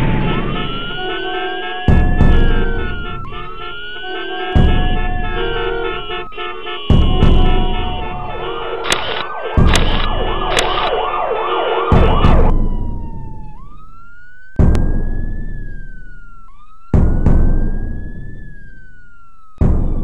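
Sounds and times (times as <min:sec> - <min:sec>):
soundtrack music: 0:00.0 - 0:13.4
siren wailing: 0:00.0 - 0:20.0
heavy low hits: 0:01.8 - 0:03.6, 0:04.6 - 0:13.4.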